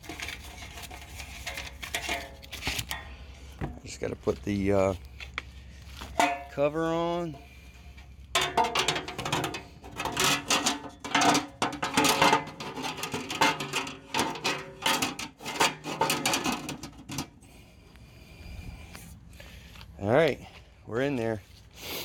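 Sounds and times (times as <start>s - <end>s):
sheet metal clicks and rattles: 8.4s - 17.3s.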